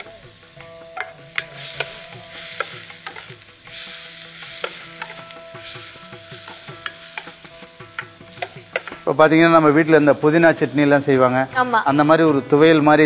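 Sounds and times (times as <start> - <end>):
metal spatula hitting a pan: 0.0 - 9.2
paste sizzling in a pan: 0.0 - 13.0.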